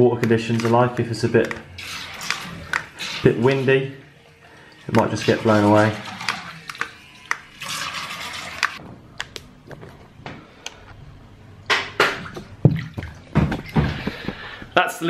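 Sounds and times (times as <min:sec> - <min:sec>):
water splashing and churning: 0:01.7 - 0:08.8, 0:12.0 - 0:14.3
water rushing: 0:01.8 - 0:08.8.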